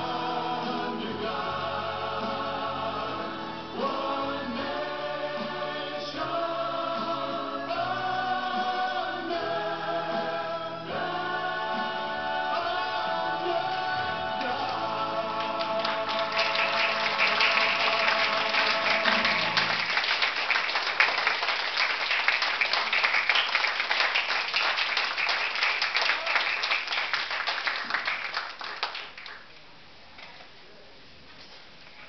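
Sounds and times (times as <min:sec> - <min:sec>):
recorded music held chord: 0:00.0 - 0:20.0
small audience clapping: 0:14.4 - 0:29.6.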